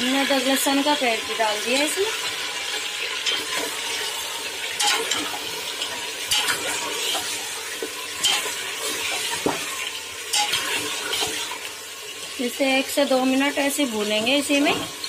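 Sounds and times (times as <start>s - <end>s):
meat sizzling in ghee: 0.0s - 15.0s
spoon scraping and clinking pot: 3.2s - 11.6s.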